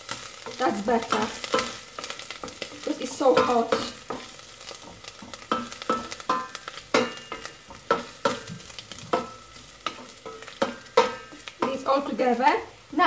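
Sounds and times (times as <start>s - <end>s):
hot oil sizzling: 0.0s - 13.0s
spoon knocking against a pot: 3.3s - 11.8s
pot ringing: 5.5s - 11.8s.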